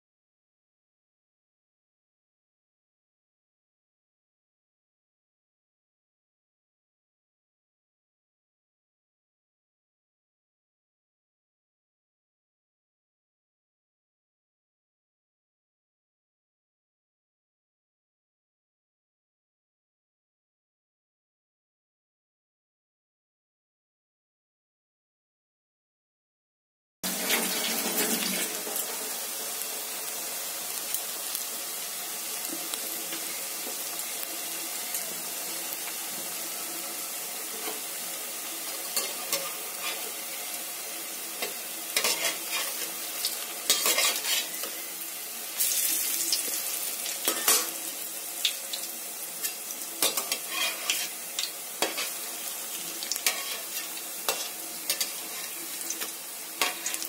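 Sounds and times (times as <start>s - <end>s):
food deep-frying in hot oil: 27.0s - 57.0s
metal spatula scraping a pan: 27.1s - 29.3s, 37.5s - 38.0s, 38.6s - 40.6s, 41.4s - 45.0s, 45.6s - 47.8s, 49.4s - 57.0s.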